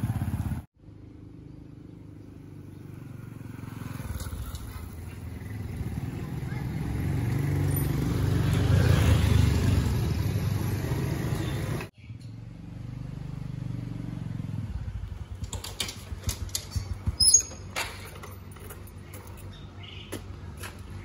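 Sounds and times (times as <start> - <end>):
vehicle engine running: 0.0 - 8.2
clicks and clatter: 15.3 - 19.5.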